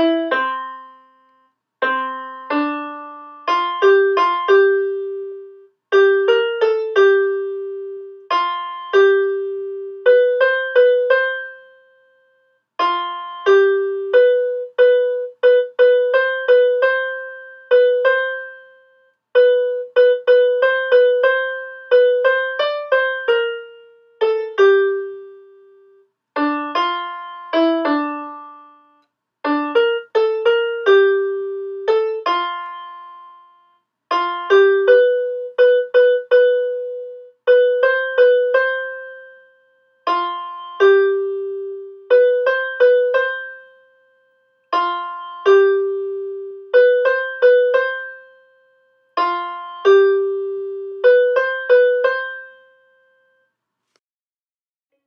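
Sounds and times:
solo keyboard melody: 0.0s - 53.6s.

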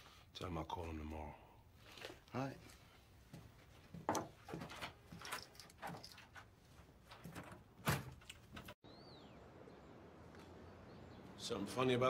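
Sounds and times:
knocks and clicks from handling things: 3.9s - 8.8s.

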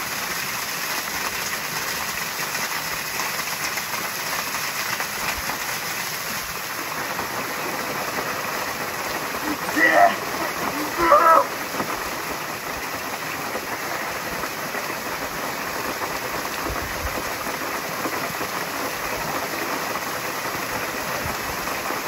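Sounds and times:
waterfall splashing onto rock: 0.0s - 22.0s
man shouting: 9.4s - 11.6s.

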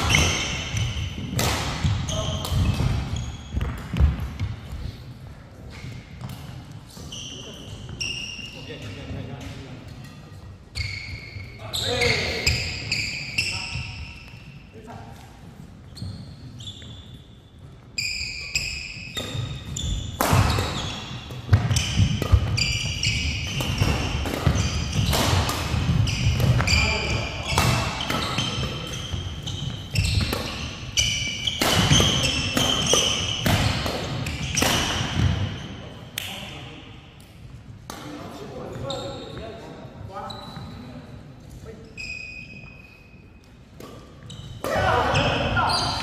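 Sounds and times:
rackets hitting shuttlecock: 0.0s - 4.6s, 18.6s - 36.4s, 43.4s - 46.0s
shoes squeaking on floor: 0.0s - 5.0s, 5.6s - 14.8s, 15.8s - 36.0s, 38.3s - 46.0s.

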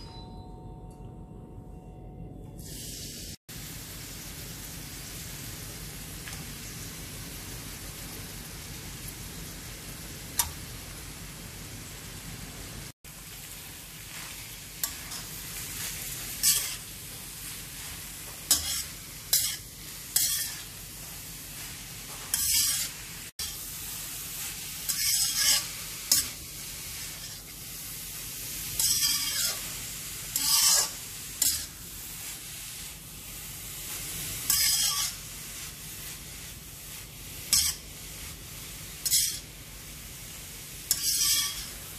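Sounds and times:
carrots sizzling in pan: 2.6s - 41.9s
metal spatula scraping pan: 14.8s - 23.6s, 24.4s - 26.4s, 27.0s - 27.5s, 28.7s - 31.7s, 34.4s - 35.3s, 37.4s - 38.3s, 39.0s - 39.5s, 40.9s - 41.8s.

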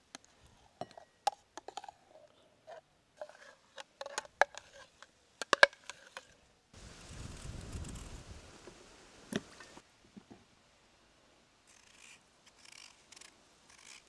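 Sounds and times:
metal spoon scraping and tapping: 0.8s - 6.4s.

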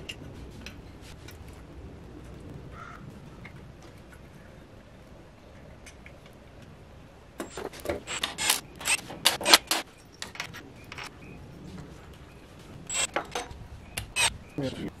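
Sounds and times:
metal clicks and scrapes: 7.4s - 11.1s, 12.9s - 14.3s.

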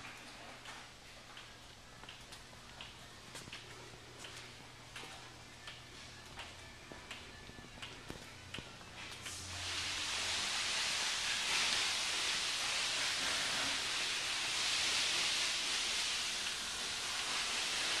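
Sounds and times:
high-pitched hiss: 9.0s - 18.0s.

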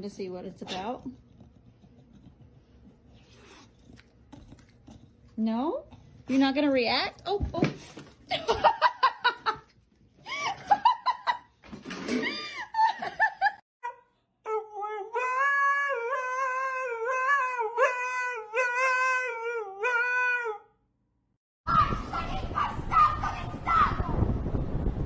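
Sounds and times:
laughter: 8.3s - 13.6s.

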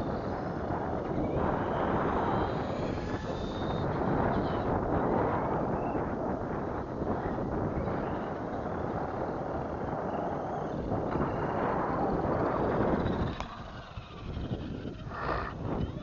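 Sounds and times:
rc truck motor whine: 0.0s - 6.1s, 7.3s - 16.0s
wind noise on microphone: 0.0s - 16.0s.

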